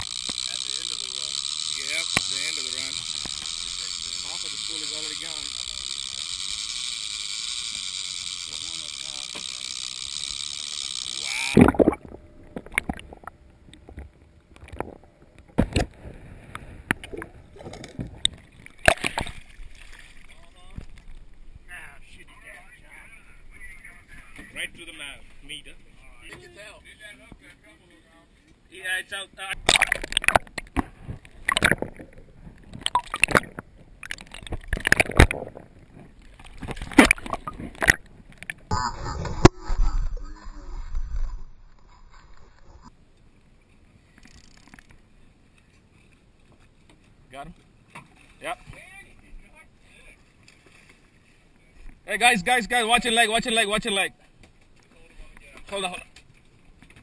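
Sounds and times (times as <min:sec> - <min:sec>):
water sloshing and gurgling: 0:05.4 - 0:21.7, 0:29.6 - 0:43.0, 0:50.2 - 0:52.0.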